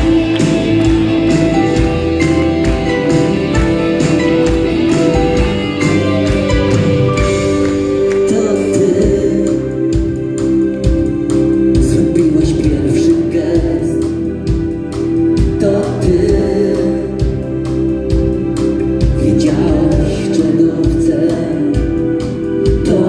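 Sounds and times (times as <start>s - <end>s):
drum beat: 0.0s - 8.1s
bass: 0.0s - 23.0s
electric guitars: 0.0s - 23.0s
keyboards: 0.0s - 23.0s
lead vocal singing: 7.2s - 10.6s, 11.7s - 14.7s, 15.4s - 17.9s, 19.0s - 23.0s.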